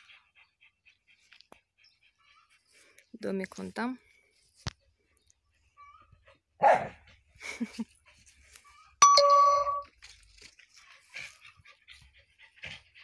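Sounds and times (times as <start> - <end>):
sharp metallic clink: 9.0 - 9.9.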